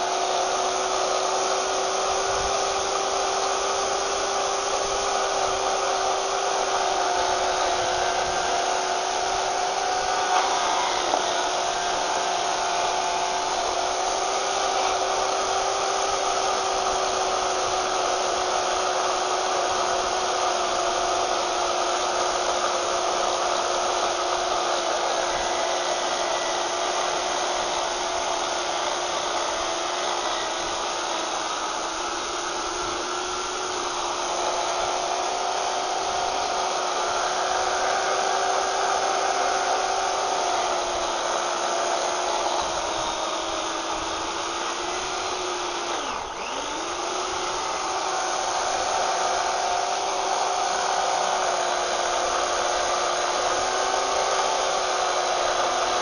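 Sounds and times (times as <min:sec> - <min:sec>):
electric chainsaw cutting wood: 0:00.0 - 0:56.0.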